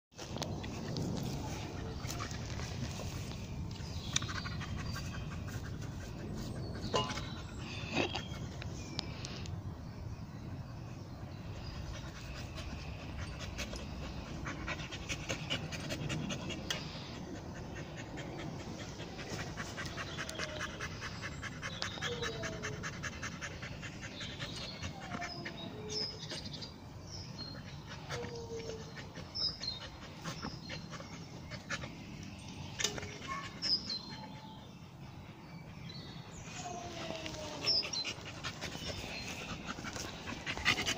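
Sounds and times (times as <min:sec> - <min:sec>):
grass rustling: 0:00.2 - 0:04.2
dog panting: 0:11.7 - 0:26.6, 0:27.4 - 0:32.2, 0:37.4 - 0:40.9.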